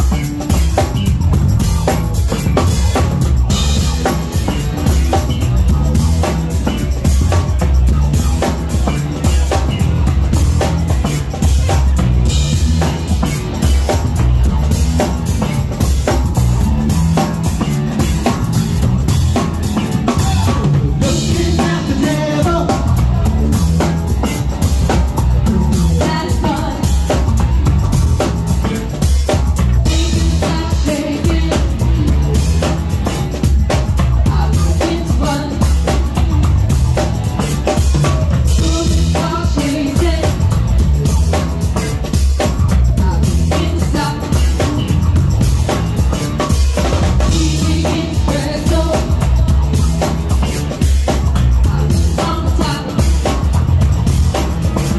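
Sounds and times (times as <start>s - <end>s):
bass guitar: 0.0s - 54.9s
drum kit beat: 0.0s - 54.9s
keyboards: 0.0s - 54.9s
live funk band playing: 0.0s - 54.9s
woman singing: 21.0s - 23.4s, 25.8s - 27.4s, 29.9s - 32.6s, 34.2s - 36.0s, 38.6s - 40.6s, 43.0s - 44.9s, 47.3s - 49.8s, 51.7s - 53.4s.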